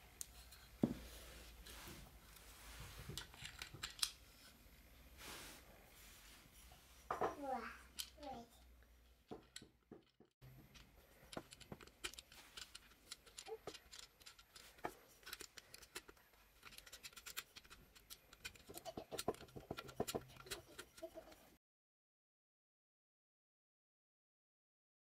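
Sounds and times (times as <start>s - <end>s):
faint clicks and taps: 7.1s - 21.4s.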